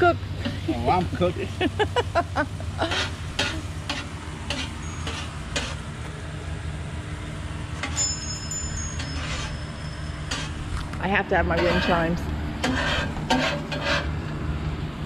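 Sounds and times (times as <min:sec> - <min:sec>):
steady low hum: 0:00.0 - 0:15.0
metal spatula scraping a griddle: 0:02.8 - 0:05.8, 0:09.0 - 0:09.6, 0:10.2 - 0:10.6, 0:11.5 - 0:14.1
metal wind chimes ringing: 0:04.7 - 0:05.6, 0:07.8 - 0:10.9.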